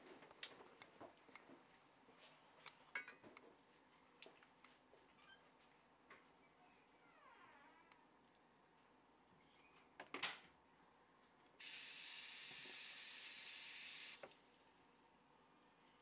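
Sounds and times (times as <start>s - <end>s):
water tap running: 11.6s - 14.3s.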